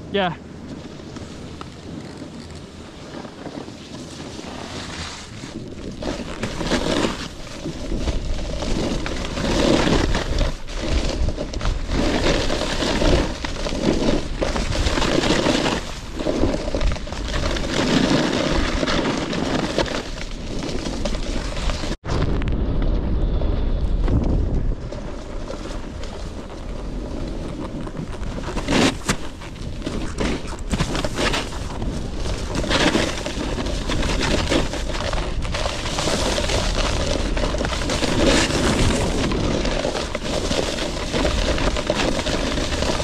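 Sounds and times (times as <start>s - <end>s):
snowboard scraping over snow: 0.0s - 43.0s
wind buffeting microphone: 21.4s - 28.6s.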